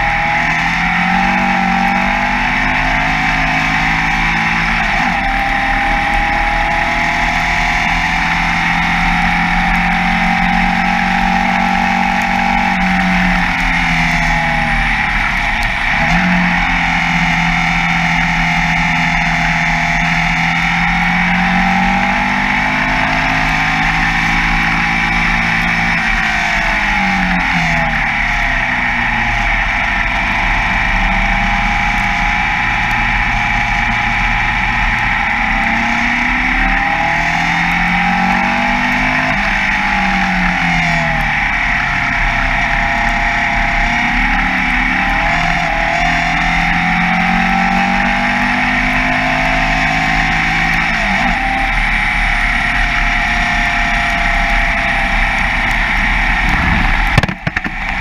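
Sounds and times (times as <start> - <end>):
racing car engine: 0.0 - 58.0
wind rushing: 56.2 - 57.4.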